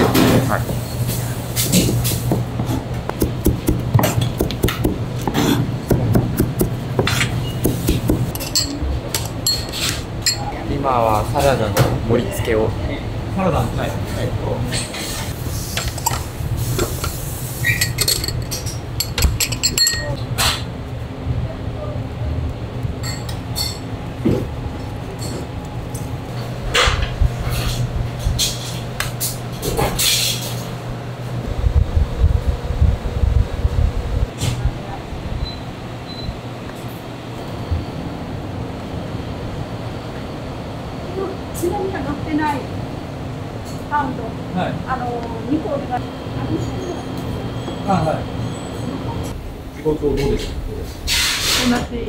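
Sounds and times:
steady low hum: 0.0s - 51.2s
dishes and utensils clinking: 7.1s - 10.6s, 17.6s - 20.6s.

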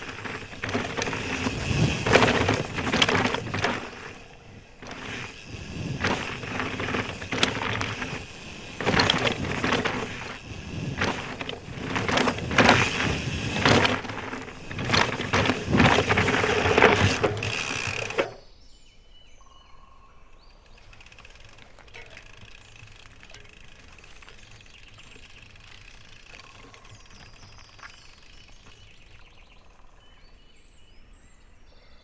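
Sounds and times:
bike knocking and rattling: 0.0s - 18.4s, 20.6s - 29.6s
bike tyres crunching over dirt: 0.0s - 18.4s, 20.6s - 30.2s
faint bird chirps: 18.3s - 21.0s, 26.3s - 32.0s.

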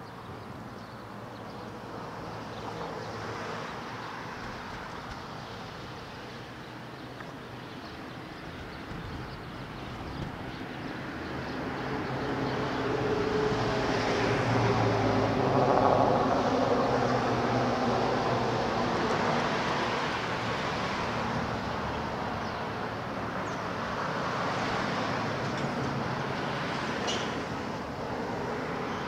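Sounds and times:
road noise: 0.0s - 29.0s.

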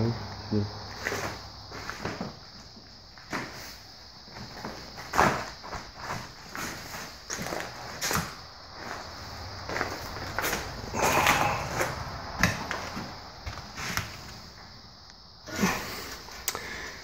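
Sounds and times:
footsteps on wooden floor: 0.9s - 3.6s, 4.3s - 14.4s
floor creaking: 0.9s - 14.8s.

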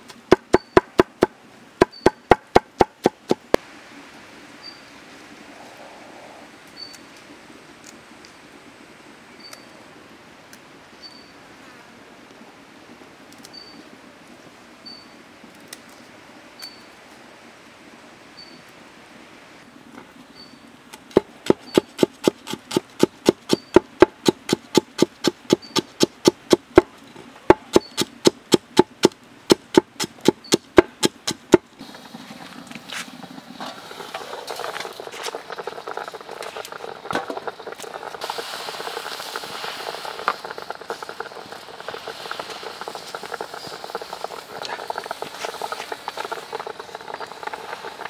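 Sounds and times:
water boiling in a wok: 31.8s - 48.0s.

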